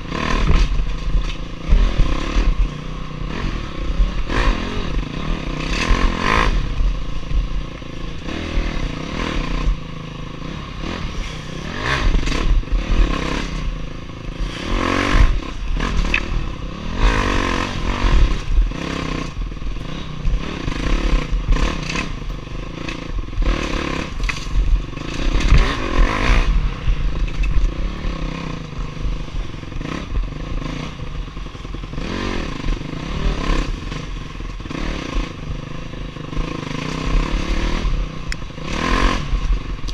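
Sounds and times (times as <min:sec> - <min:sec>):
dirt bike engine revving: 0:00.0 - 0:39.9
bike clattering over bumps: 0:24.0 - 0:26.0.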